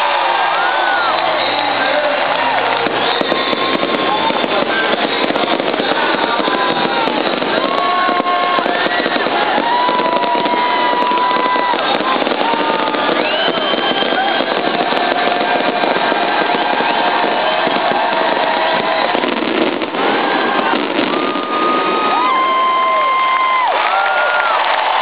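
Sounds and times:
crowd cheering and whooping: 0.0s - 25.0s
fireworks crackling and popping: 0.0s - 25.0s.

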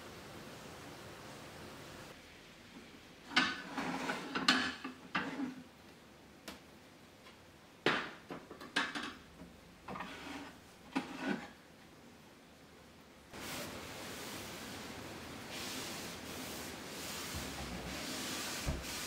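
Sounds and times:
plates clinking and clattering: 3.3s - 5.6s.

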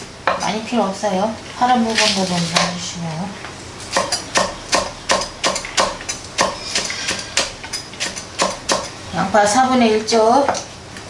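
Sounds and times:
knife chopping on wooden board: 3.9s - 8.9s.

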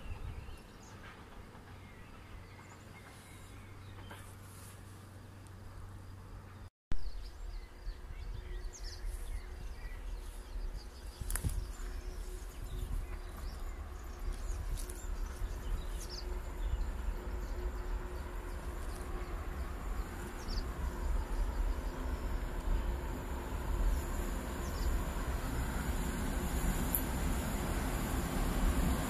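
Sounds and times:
wind rumbling on microphone: 0.0s - 0.8s, 7.0s - 29.0s
approaching train hum: 0.0s - 29.0s
birds chirping: 6.4s - 29.0s.

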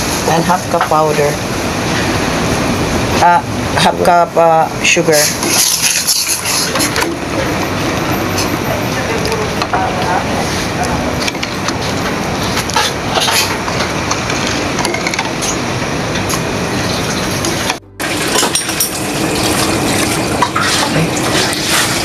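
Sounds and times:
steady background noise: 0.0s - 22.0s
liquid sloshing: 18.0s - 22.0s.

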